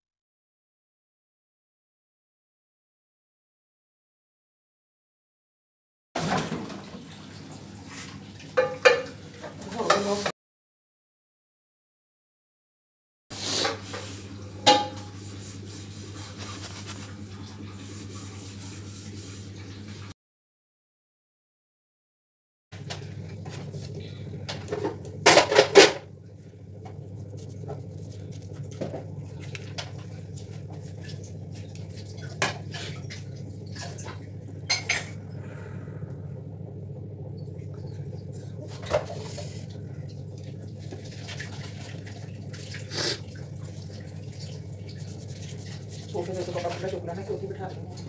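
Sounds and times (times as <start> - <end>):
plates and cutlery clinking: 8.6 - 9.2, 14.6 - 15.2
steady low hum: 22.8 - 48.0.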